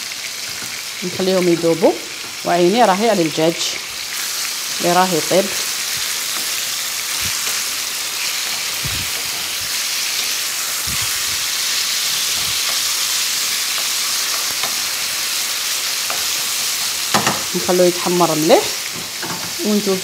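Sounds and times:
chicken sizzling in oil: 0:00.0 - 0:20.0
wooden spoon knocking on pan: 0:16.1 - 0:17.5.

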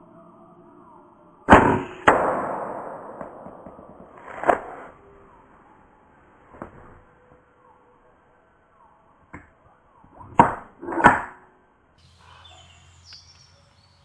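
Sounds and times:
sharp knock: 0:01.5 - 0:04.9
air rifle shot crack: 0:01.5 - 0:05.0.

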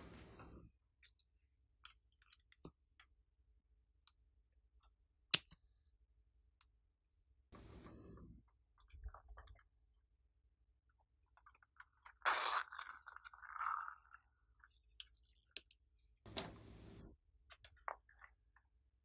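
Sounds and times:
plastic beads rattling: 0:12.4 - 0:15.6.

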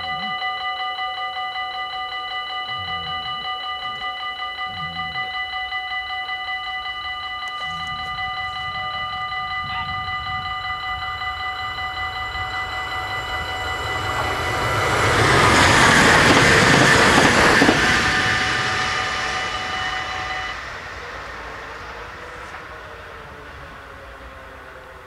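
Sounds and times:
level crossing bells ringing: 0:00.0 - 0:25.0
passenger train passing: 0:00.0 - 0:25.0.

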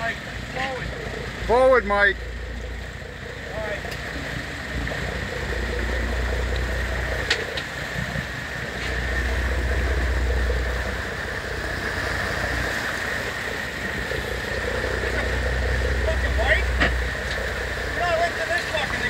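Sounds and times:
boat engines rumbling: 0:00.0 - 0:19.0
propeller wash churning water: 0:00.0 - 0:19.0.

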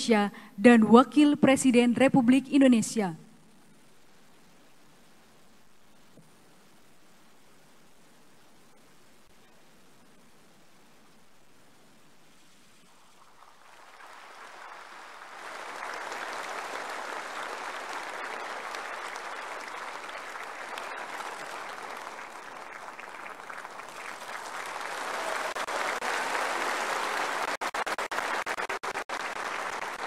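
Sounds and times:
audience applauding: 0:13.4 - 0:30.0.

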